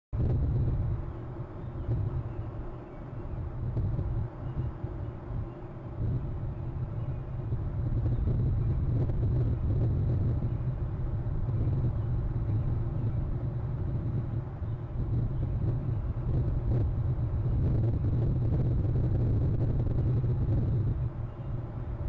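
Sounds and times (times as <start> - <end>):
low outdoor rumble: 0.1 - 22.0.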